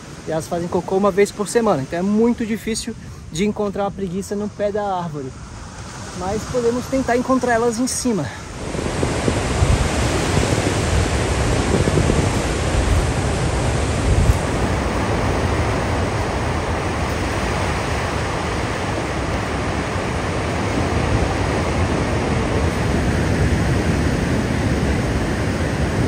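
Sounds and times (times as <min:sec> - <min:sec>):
steady loud rushing noise: 0:00.0 - 0:26.0
wind buffeting microphone: 0:08.4 - 0:26.0.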